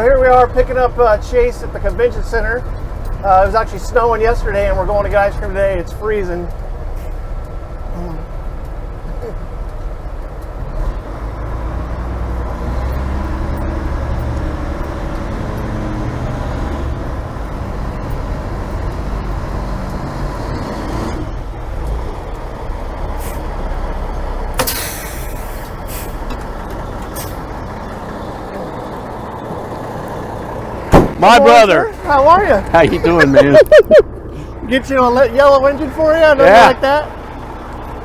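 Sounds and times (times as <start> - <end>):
fire engine droning: 0.0 - 38.0
air brake hiss: 23.2 - 23.4, 24.6 - 26.2.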